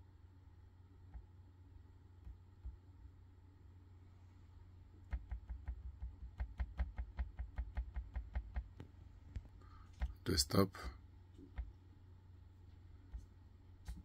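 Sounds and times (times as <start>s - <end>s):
rapid laptop clicks: 5.0s - 10.2s, 11.4s - 11.8s.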